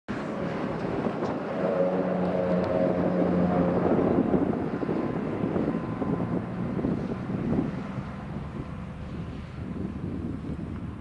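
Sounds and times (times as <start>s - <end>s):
diesel locomotive engine drone: 0.1s - 11.0s
held hum: 0.1s - 11.0s
wind on microphone: 0.1s - 11.0s.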